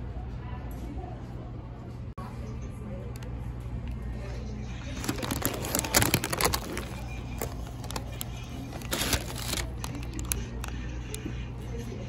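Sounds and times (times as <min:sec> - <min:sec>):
paper wrapper crinkling: 0:04.9 - 0:10.8.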